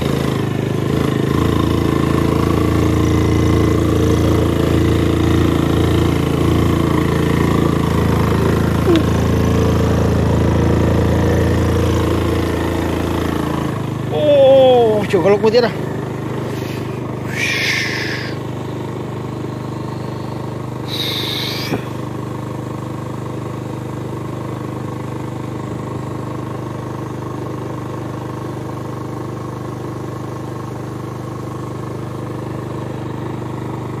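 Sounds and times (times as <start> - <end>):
motorcycle engine running: 0.0 - 34.0
brief high-pitched noises: 16.5 - 18.4, 20.9 - 22.0.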